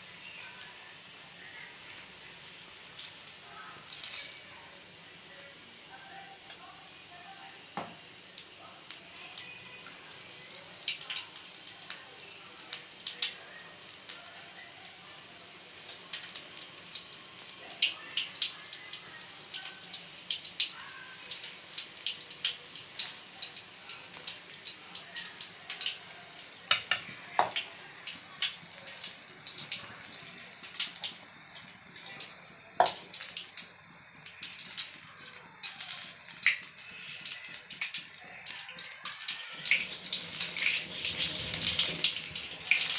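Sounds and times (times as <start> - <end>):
deep-frying sizzle with crackles: 0.0 - 42.9.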